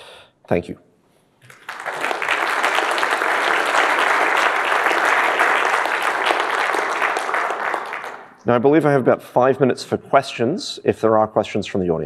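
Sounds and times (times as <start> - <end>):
audience applauding: 1.4 - 8.4.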